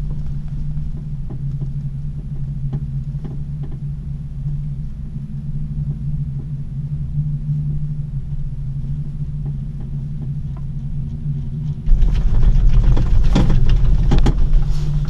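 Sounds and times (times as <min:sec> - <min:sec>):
gondola cabin humming on rope: 0:00.0 - 0:15.0
cabin rumbling over rollers: 0:11.9 - 0:15.0.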